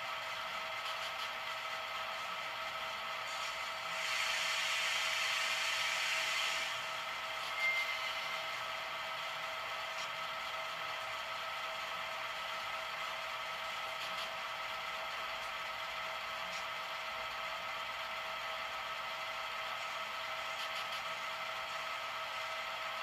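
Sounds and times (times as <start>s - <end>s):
diesel locomotive idling: 0.0s - 23.0s
air hiss: 3.3s - 6.9s
short high tone: 7.5s - 8.4s.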